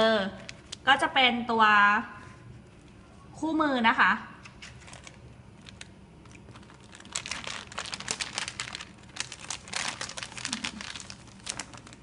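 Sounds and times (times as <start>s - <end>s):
plastic bag crinkling: 4.6s - 12.0s.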